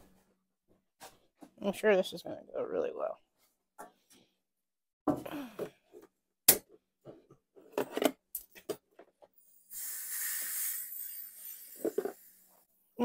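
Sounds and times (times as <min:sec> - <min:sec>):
air blow gun hissing: 0:09.5 - 0:12.6.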